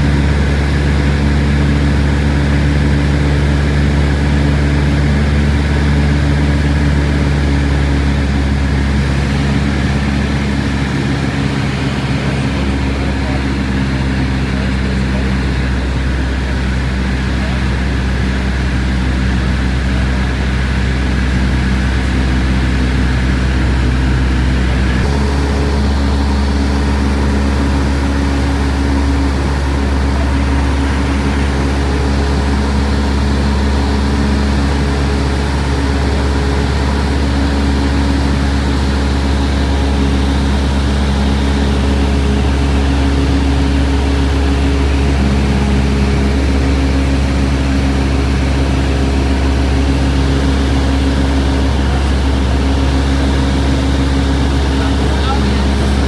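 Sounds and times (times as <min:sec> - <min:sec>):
light aircraft engine drone: 0:00.0 - 0:56.0.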